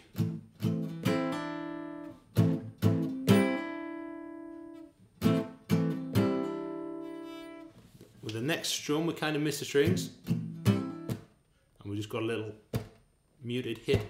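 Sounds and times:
acoustic guitar strumming: 0:00.0 - 0:07.8, 0:09.8 - 0:11.3.

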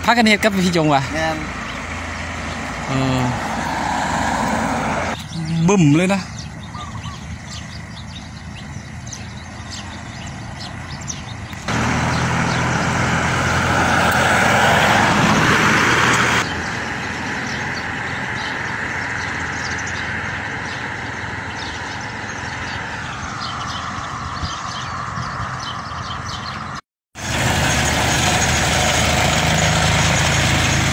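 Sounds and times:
birds chirping: 0:00.0 - 0:30.9
steady traffic noise: 0:00.0 - 0:30.9
vehicle engine and tyre noise: 0:00.0 - 0:30.9.

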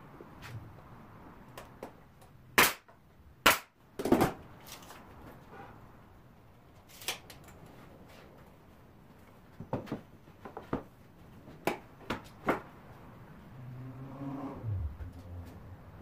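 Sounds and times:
nail gun shots: 0:02.6 - 0:03.7.

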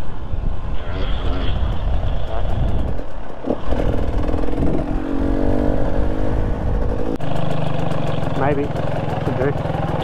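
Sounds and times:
dirt bike engine running: 0:00.8 - 0:10.0.

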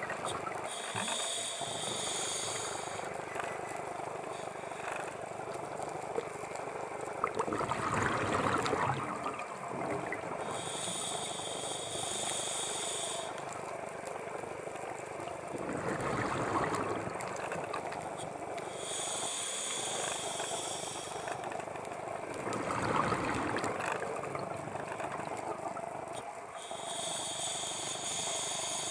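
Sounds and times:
hissing regulator inhale: 0:00.6 - 0:05.2, 0:10.4 - 0:13.6, 0:18.6 - 0:21.8, 0:26.5 - 0:28.9
bubbling exhales: 0:07.2 - 0:11.0, 0:15.6 - 0:17.2, 0:22.4 - 0:25.8.

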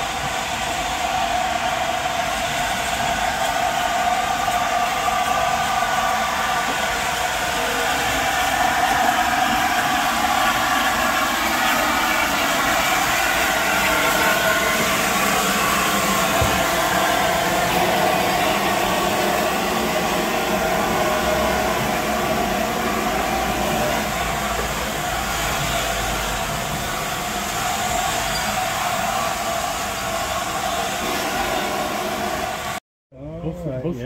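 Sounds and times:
steam locomotive hissing: 0:00.0 - 0:32.8.

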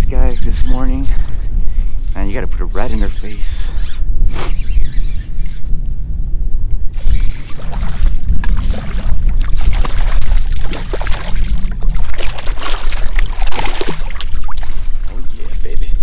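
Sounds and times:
low rumble: 0:05.0 - 0:16.0
fish thrashing and splashing: 0:07.0 - 0:15.2.

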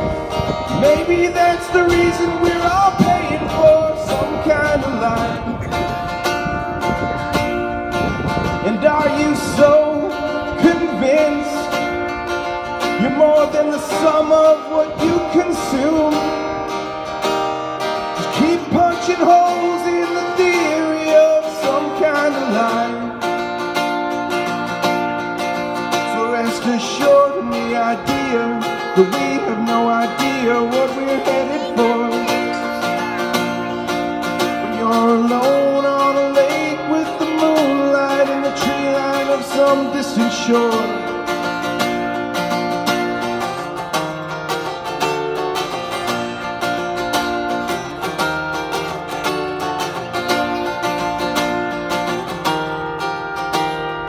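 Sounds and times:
man singing a folk song: 0:00.0 - 0:06.2, 0:08.4 - 0:17.1, 0:17.8 - 0:23.5, 0:25.6 - 0:44.0
acoustic guitar playing: 0:00.0 - 0:54.0.

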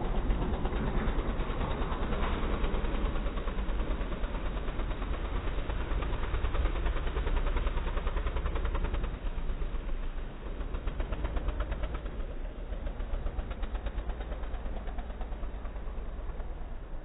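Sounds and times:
quad bike engine running: 0:00.0 - 0:17.0.

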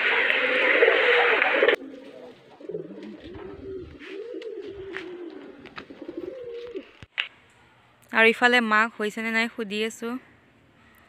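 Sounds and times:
pigeons cooing: 0:00.0 - 0:07.0.

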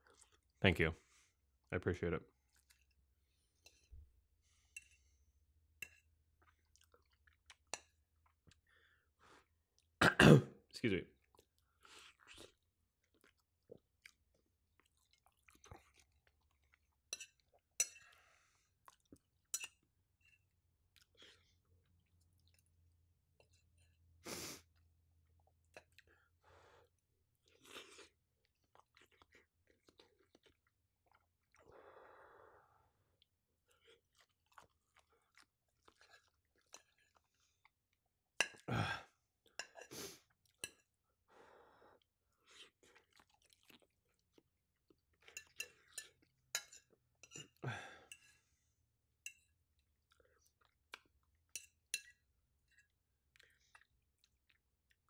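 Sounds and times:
chewing and mouth sounds: 0:05.8 - 0:08.8, 0:11.2 - 0:23.9, 0:26.9 - 0:31.8, 0:33.1 - 0:38.7, 0:42.3 - 0:48.3, 0:49.3 - 0:55.0.

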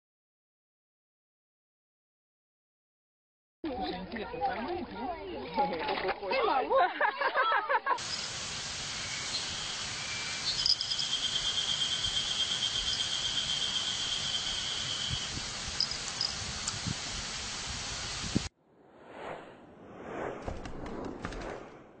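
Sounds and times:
steady hiss: 0:07.9 - 0:18.5
insect trilling: 0:08.0 - 0:16.5.

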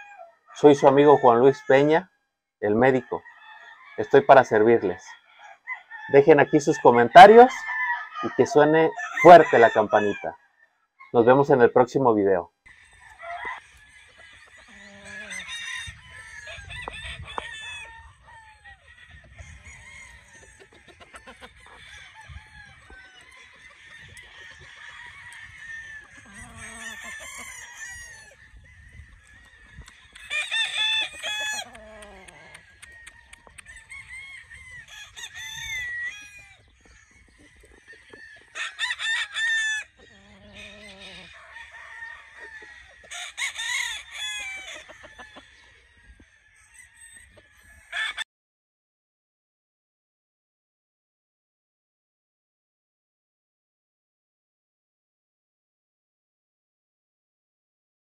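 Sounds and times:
roosters crowing: 0:00.0 - 0:12.0, 0:12.7 - 0:48.2
chickens clucking: 0:11.0 - 0:34.8, 0:35.4 - 0:46.6.

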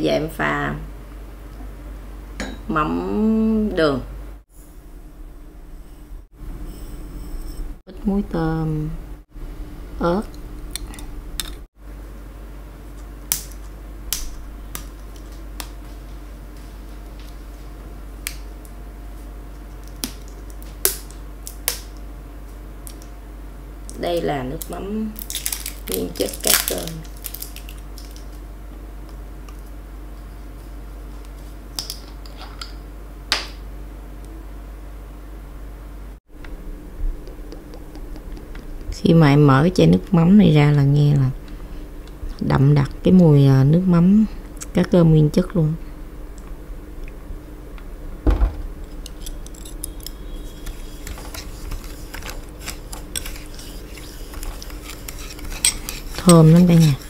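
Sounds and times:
faint steady hum: 0:00.0 - 0:57.0
thump: 0:48.2 - 0:48.8.

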